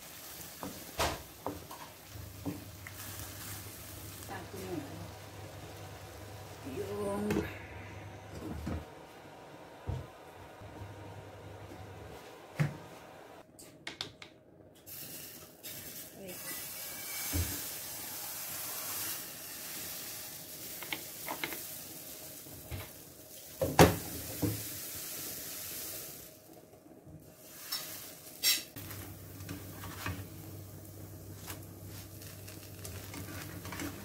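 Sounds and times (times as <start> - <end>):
batter sizzling in frying pan: 0.0 - 6.8, 14.9 - 34.0
steady low hum: 2.2 - 13.4.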